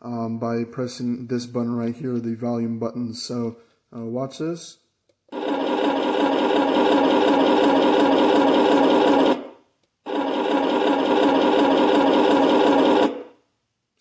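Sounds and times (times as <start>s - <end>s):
simulated tank engine running: 5.4s - 9.4s, 10.1s - 13.2s.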